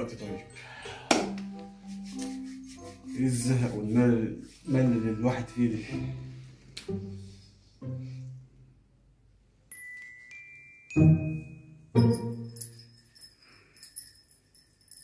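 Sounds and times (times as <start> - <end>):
bell-like notes: 9.7 - 15.0
light jingling and tinkling: 9.7 - 15.0.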